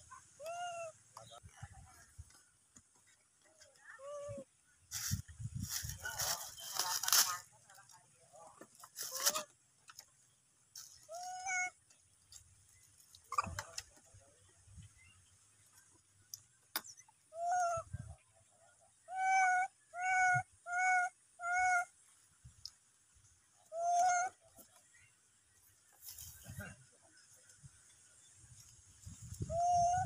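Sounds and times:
monkeys giving high coo calls: 0.0s - 1.4s, 13.1s - 14.0s, 17.2s - 18.1s, 18.9s - 22.0s, 23.6s - 24.7s, 29.4s - 30.0s.

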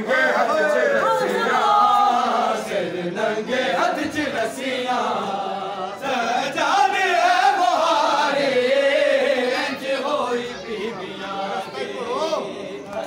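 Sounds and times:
men chanting a lament: 0.0s - 13.0s.

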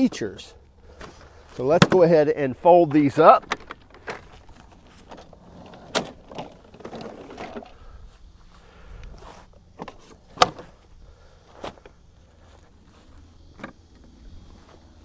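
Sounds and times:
lawn mower handles clicking and clunking: 1.0s - 7.8s, 9.8s - 10.8s.

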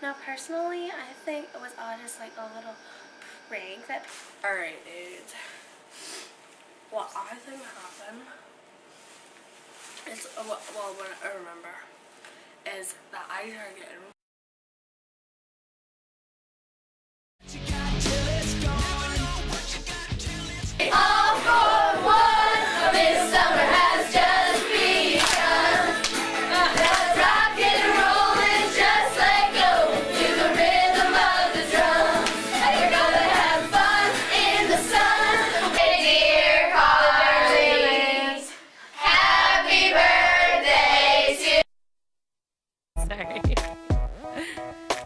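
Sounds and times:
girls singing together with music: 20.8s - 41.6s.

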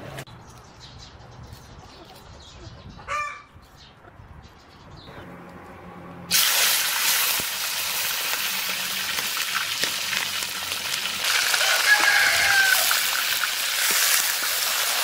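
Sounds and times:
meat sizzling in hot oil: 6.3s - 15.0s
chicken call: 11.4s - 13.1s.

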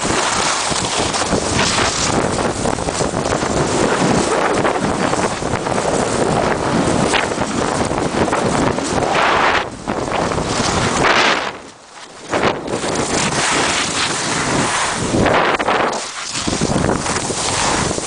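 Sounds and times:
skis scraping over snow: 0.0s - 18.0s
wind rushing over microphone: 0.0s - 18.0s.

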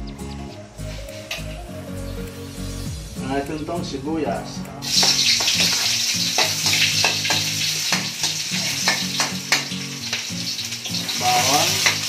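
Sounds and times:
onion sizzling in hot oil: 4.8s - 12.0s.

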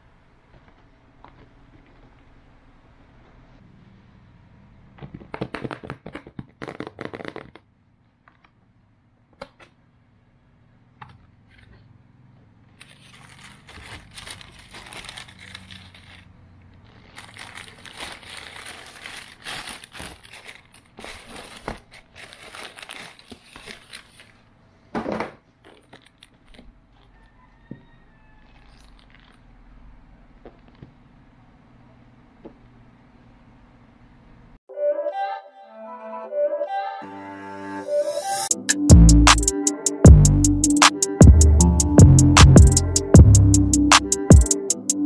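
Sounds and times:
tissue paper rustling: 12.9s - 24.5s.

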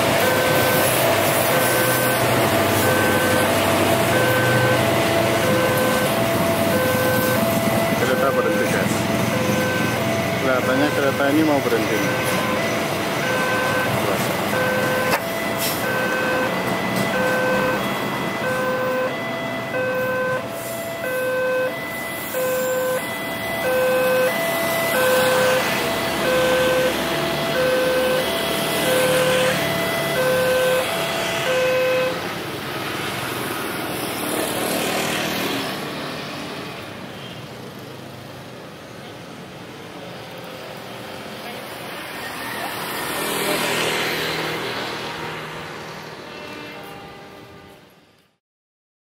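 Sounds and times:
level crossing warning bell: 0.0s - 32.4s
passenger train running past: 0.0s - 37.1s, 38.6s - 48.0s.

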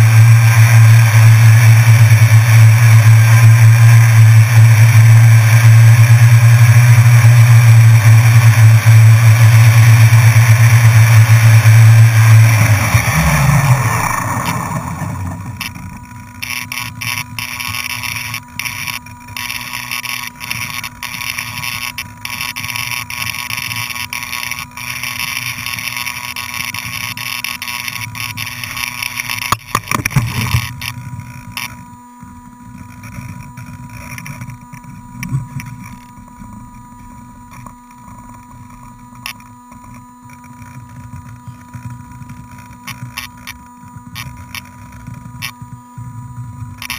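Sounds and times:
drone propellers whirring: 0.0s - 46.9s
drone knocking on floor: 29.5s - 31.7s.

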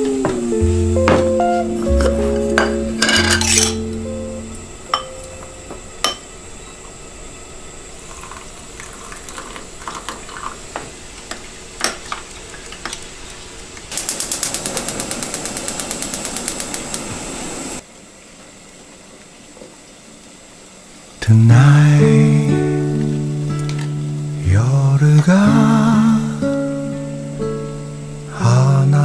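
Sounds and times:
glassware clinking set down: 2.0s - 3.9s, 4.9s - 6.2s
spoon clinking against glass: 3.0s - 3.8s, 4.9s - 5.3s.

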